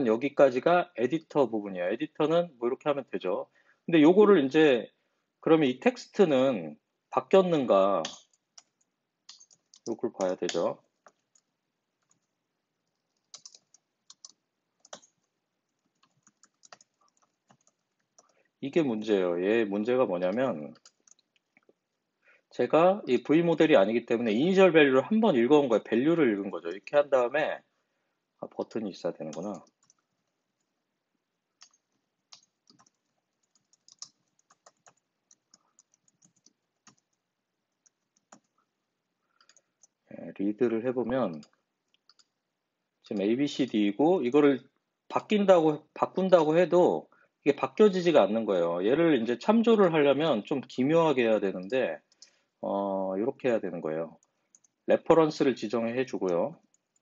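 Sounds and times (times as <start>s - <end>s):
faint keyboard typing: 7.3s - 27.4s, 28.4s - 57.0s.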